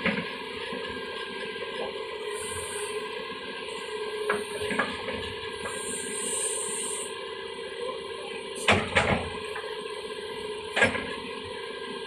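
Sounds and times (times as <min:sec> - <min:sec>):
excavator diesel engine running: 0:00.0 - 0:12.0
hydraulic hiss: 0:02.2 - 0:04.8, 0:05.5 - 0:07.2.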